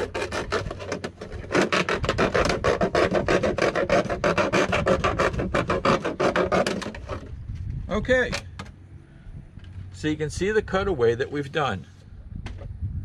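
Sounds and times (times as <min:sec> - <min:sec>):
knife sawing through plastic jug: 0:00.0 - 0:07.3.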